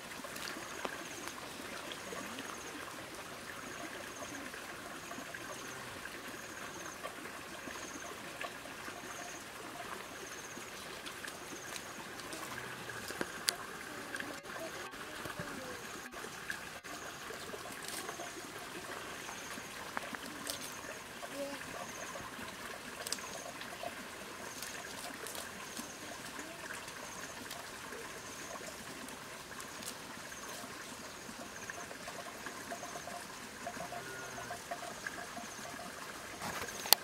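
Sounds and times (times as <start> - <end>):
steady outdoor hiss: 0.0 - 37.0
faint snaps and rustles in grass: 0.2 - 1.4, 11.0 - 13.6, 23.0 - 23.3, 24.6 - 25.9, 29.0 - 30.6.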